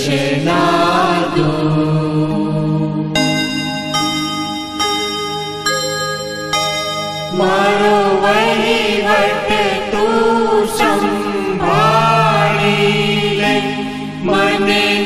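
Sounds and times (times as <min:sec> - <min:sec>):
voices singing: 0:00.0 - 0:03.5, 0:07.3 - 0:15.0
held chiming tones: 0:03.2 - 0:11.0.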